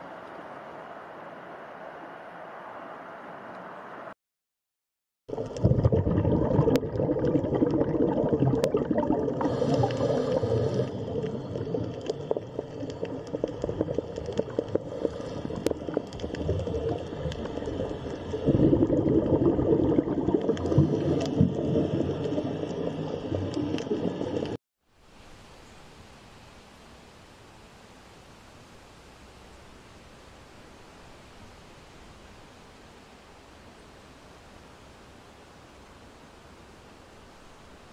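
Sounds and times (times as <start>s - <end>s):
underwater gurgling and bubbling: 5.3s - 24.6s.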